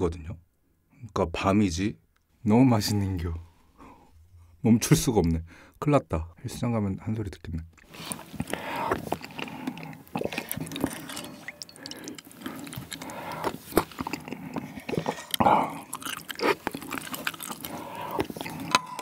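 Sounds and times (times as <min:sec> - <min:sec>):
chewing and mouth clicks: 0:07.7 - 0:19.0
noodles slurped: 0:07.8 - 0:19.0.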